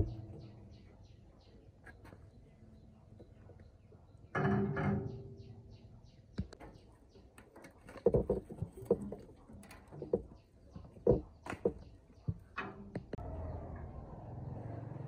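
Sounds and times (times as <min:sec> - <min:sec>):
metal clanking: 0:00.0 - 0:00.7, 0:04.3 - 0:05.7.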